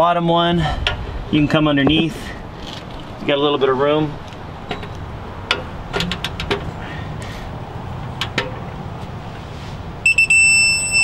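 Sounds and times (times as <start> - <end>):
high electronic beeps: 10.1 - 11.0.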